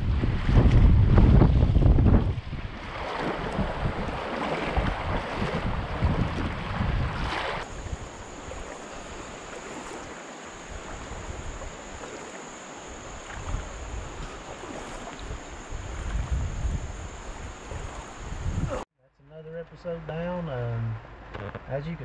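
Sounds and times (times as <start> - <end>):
wind buffeting microphone: 0.0 - 12.2, 12.8 - 18.8
river water rushing: 2.7 - 16.3
faint high whine: 7.6 - 22.0.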